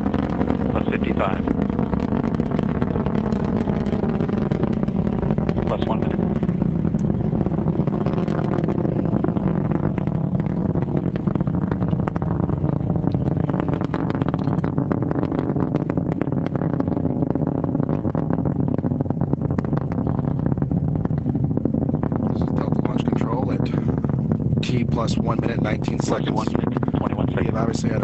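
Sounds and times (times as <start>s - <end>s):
rocket engines rumbling and crackling: 0.0s - 28.0s.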